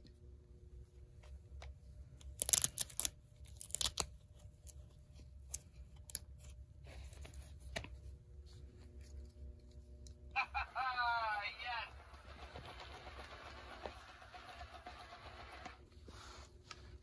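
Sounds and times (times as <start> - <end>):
light clicks and rustles of handling: 0.9 - 10.3
hook-and-loop strip ripping open: 2.2 - 4.8.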